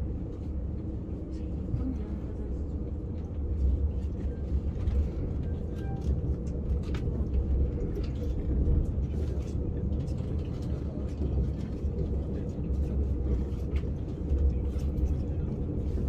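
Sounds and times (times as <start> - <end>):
train rumble from inside car: 0.0 - 16.0.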